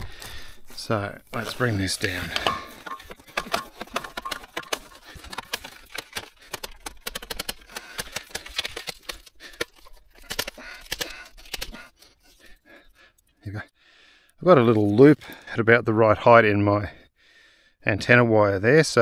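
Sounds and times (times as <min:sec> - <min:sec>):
pole sections clacking and scraping: 0:01.2 - 0:08.8.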